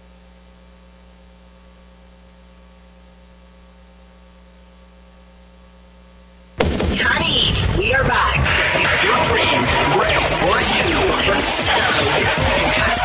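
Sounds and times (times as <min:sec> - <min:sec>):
electrical mains hum: 0:00.0 - 0:08.2
loud music: 0:06.6 - 0:13.0.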